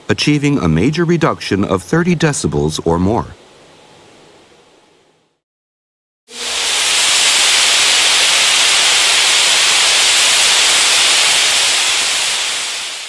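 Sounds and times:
gas hissing from nozzle: 6.3s - 13.0s.

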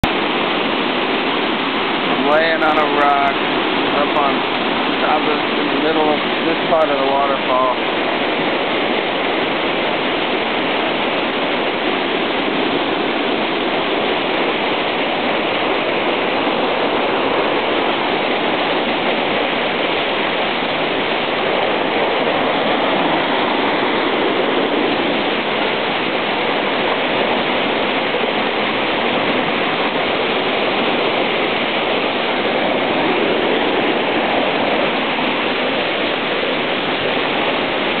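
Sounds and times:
waterfall rushing over rocks: 0.0s - 38.0s.

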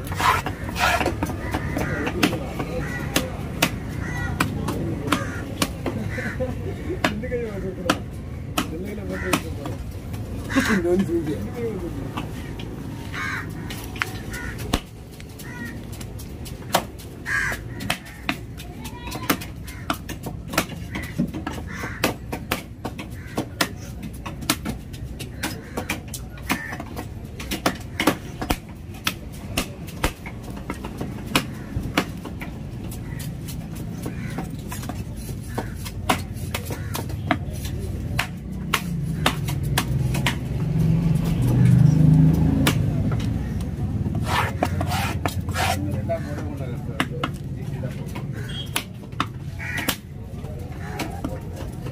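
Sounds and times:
cleaver chopping on wooden block: 0.0s - 6.0s, 33.2s - 40.5s, 44.0s - 45.8s
crows cawing: 0.2s - 8.1s, 8.9s - 9.8s, 10.4s - 11.4s, 12.3s - 16.0s, 16.7s - 23.9s, 25.2s - 28.5s, 31.0s - 32.2s, 32.9s - 37.4s, 48.3s - 48.8s, 49.4s - 51.4s.

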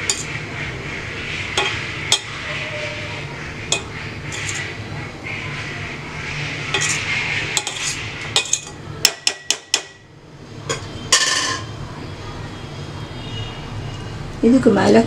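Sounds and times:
metal pot clank: 0.0s - 0.3s, 1.6s - 2.4s, 3.7s - 4.7s, 6.7s - 10.0s, 10.7s - 11.7s
spoon scraping rice in pot: 0.0s - 0.4s, 1.5s - 4.8s, 6.6s - 9.6s.

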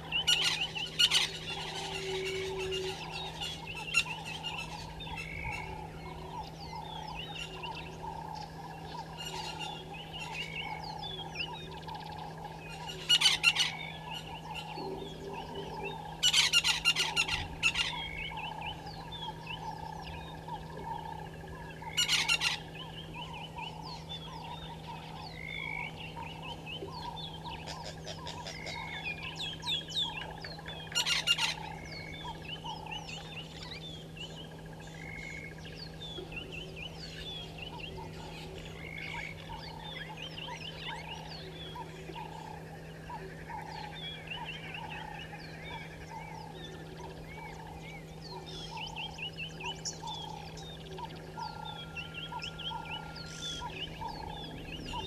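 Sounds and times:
steady low hum: 0.0s - 55.0s
wild bird calls and chirps: 0.0s - 55.0s.

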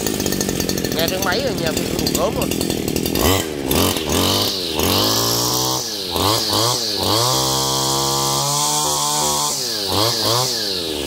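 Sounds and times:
brush cutter engine revving: 0.0s - 11.0s.

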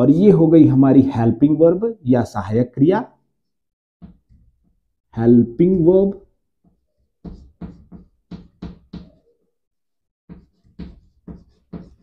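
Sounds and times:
chalk tapping on a chalkboard: 4.0s - 4.8s, 6.6s - 9.4s, 10.3s - 12.0s.

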